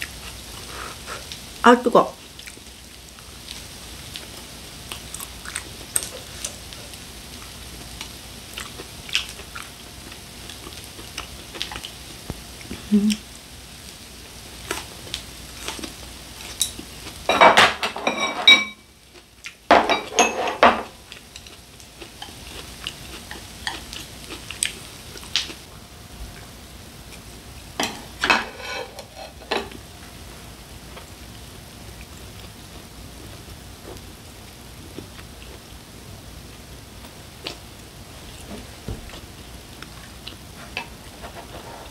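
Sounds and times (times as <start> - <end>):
faint griddle sizzle: 0.0 - 41.9.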